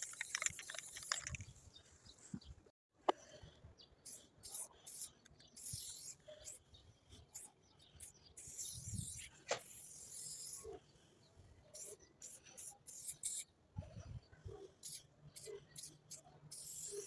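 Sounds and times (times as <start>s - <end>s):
spray paint can hissing: 0.0s - 1.4s, 4.1s - 6.6s, 7.4s - 10.7s, 11.8s - 13.5s, 14.8s - 17.0s.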